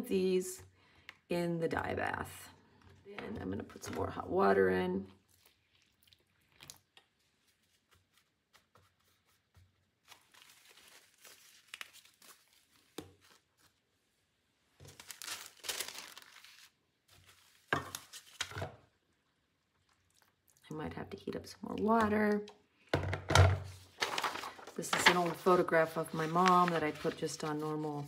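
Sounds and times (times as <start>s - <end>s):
paper sachets crinkling and tearing: 10.0s - 13.8s, 14.8s - 18.5s, 23.9s - 28.0s.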